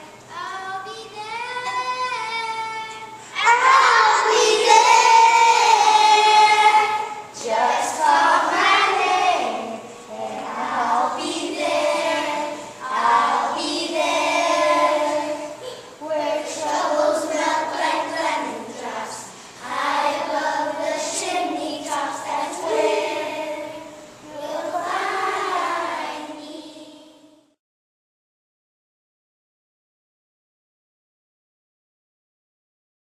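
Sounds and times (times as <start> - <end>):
children's choir singing: 1.5 - 27.6.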